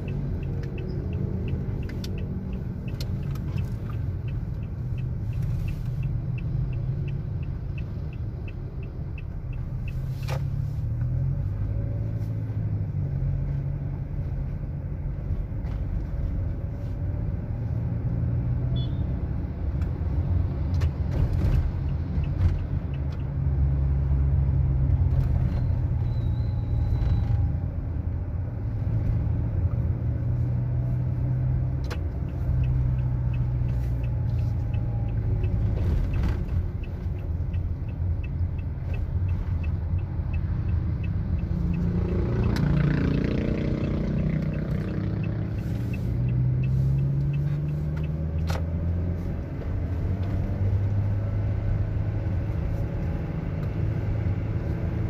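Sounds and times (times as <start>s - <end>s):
vehicle engine drone: 0.0s - 55.0s
motorcycles and cars passing: 29.2s - 55.0s.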